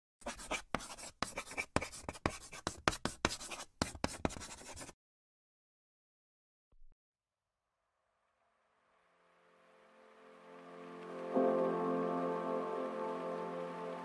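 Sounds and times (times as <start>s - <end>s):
brush strokes scratching paper: 0.2s - 5.0s.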